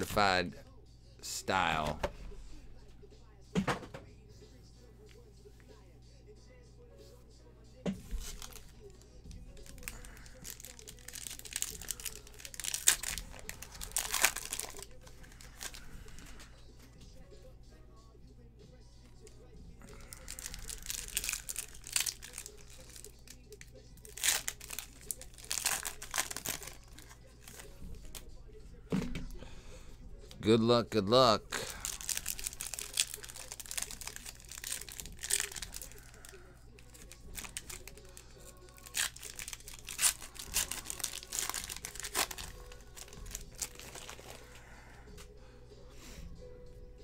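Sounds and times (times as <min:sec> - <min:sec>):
foil wrapper crinkling and tearing: 0:08.1 - 0:09.0, 0:09.6 - 0:16.5, 0:19.8 - 0:28.2, 0:31.6 - 0:44.7.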